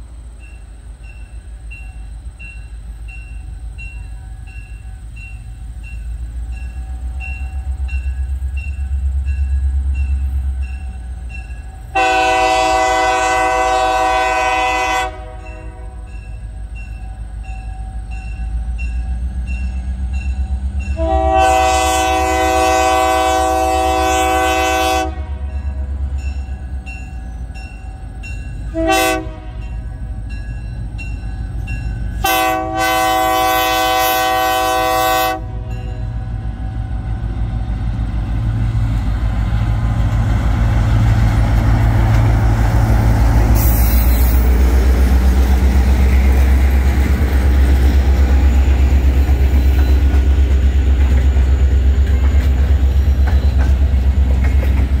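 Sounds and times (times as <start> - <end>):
diesel locomotive engine rumble: 0.0 - 55.0
locomotive horn blast: 11.9 - 16.2, 20.9 - 25.9, 28.7 - 29.9, 32.2 - 37.0
freight cars clattering on rails: 38.5 - 55.0.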